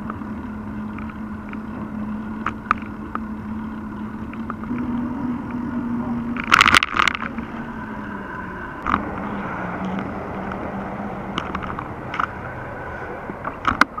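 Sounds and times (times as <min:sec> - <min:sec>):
steady low hum: 0:00.0 - 0:14.0
bike and camera mount clattering: 0:06.4 - 0:07.4, 0:11.3 - 0:12.4, 0:13.3 - 0:14.0.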